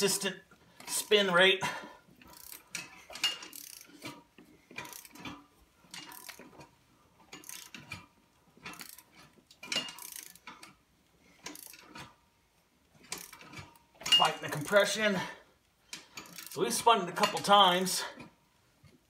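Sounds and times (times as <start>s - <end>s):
wrench clicking and rattling: 2.2s - 6.7s, 7.3s - 10.8s, 11.4s - 12.2s, 13.0s - 14.8s, 15.9s - 16.6s.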